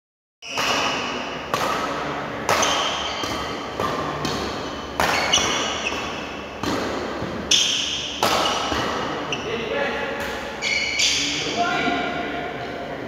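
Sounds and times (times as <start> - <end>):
shoe squeaks: 0.4 - 1.0, 2.6 - 3.3, 4.7 - 6.5, 7.5 - 9.6, 10.6 - 11.5
racket hitting shuttlecock: 0.4 - 9.4, 10.1 - 11.2.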